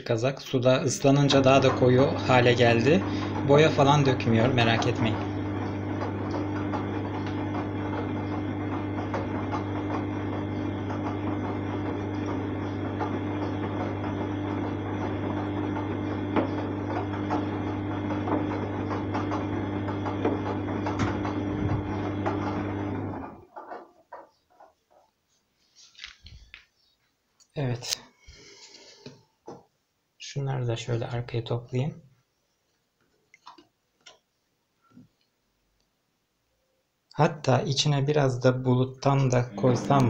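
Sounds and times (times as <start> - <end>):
washing machine motor hum: 0.0 - 24.3, 37.8 - 40.0.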